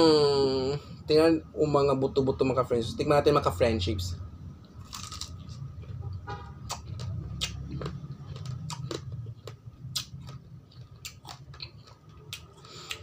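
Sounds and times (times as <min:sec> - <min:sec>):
person chewing pomegranate seeds: 0:04.6 - 0:06.0, 0:06.6 - 0:13.0.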